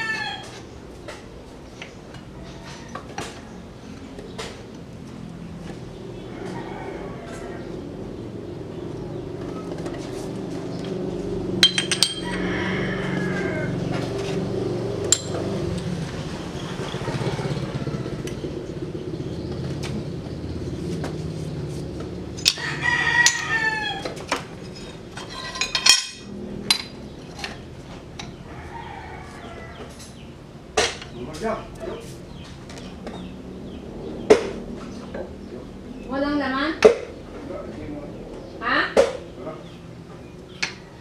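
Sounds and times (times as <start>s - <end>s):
rooster crowing: 0.0s - 0.6s, 6.2s - 8.0s, 12.0s - 14.4s, 17.0s - 18.4s, 22.4s - 24.2s, 28.4s - 30.2s
metal plates clanking: 11.6s - 12.4s, 24.6s - 27.6s.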